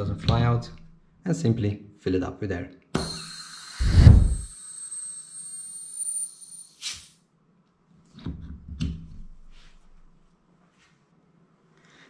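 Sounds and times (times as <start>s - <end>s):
high whistle: 3.0s - 7.1s
high-pressure air hissing: 3.0s - 7.2s
short burst of hiss: 3.1s - 4.6s, 6.6s - 7.2s.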